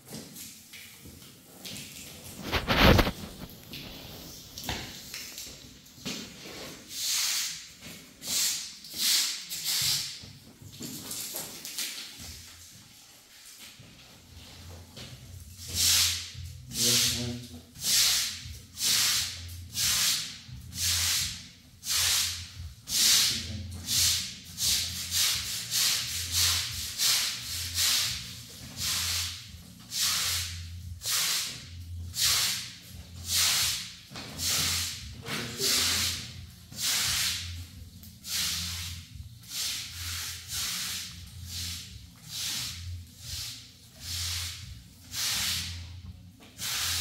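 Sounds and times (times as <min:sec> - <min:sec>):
push broom scrubbing wet concrete: 0:02.4 - 0:04.8, 0:06.6 - 0:07.6, 0:15.7 - 0:20.2, 0:22.9 - 0:28.2, 0:28.8 - 0:29.3, 0:29.9 - 0:31.6, 0:34.4 - 0:37.5, 0:38.2 - 0:45.9, 0:46.6 - 0:47.0.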